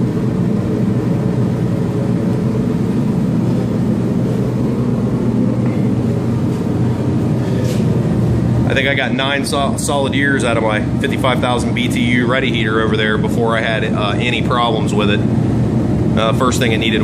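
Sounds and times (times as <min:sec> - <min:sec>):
low held tones: 0:00.0 - 0:13.5
heater blower fan and burner hum: 0:00.0 - 0:17.0.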